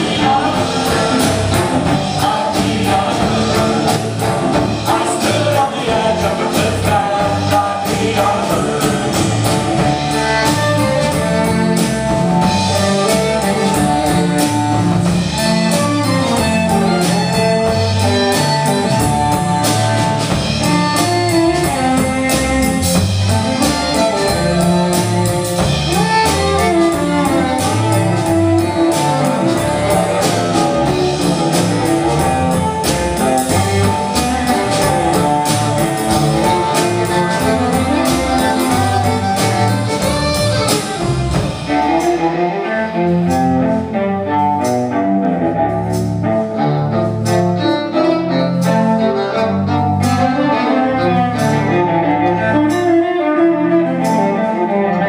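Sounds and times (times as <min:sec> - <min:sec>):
person singing: 0:00.0 - 0:14.8
drum kit: 0:00.0 - 0:55.0
electric guitar: 0:00.0 - 0:55.0.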